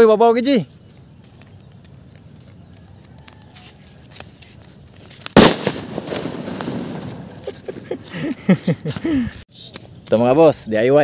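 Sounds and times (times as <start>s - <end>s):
firecracker bang: 5.2s - 8.1s.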